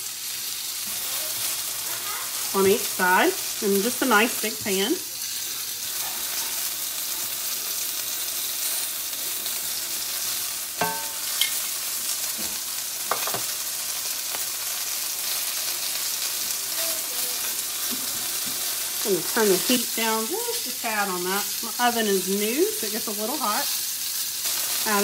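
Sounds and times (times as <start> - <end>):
chicken sizzling in oil: 0.0 - 25.0
tongs clinking against pan: 10.8 - 11.6.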